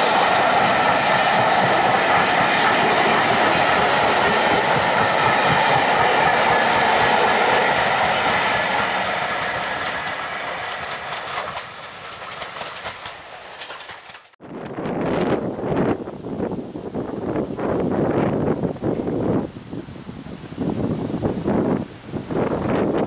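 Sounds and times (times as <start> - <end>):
train wheels clattering on rails: 0.0 - 14.4.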